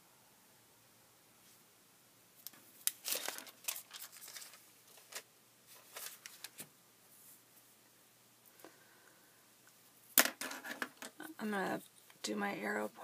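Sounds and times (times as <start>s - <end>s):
tracing paper rustling and crinkling: 2.5s - 7.4s.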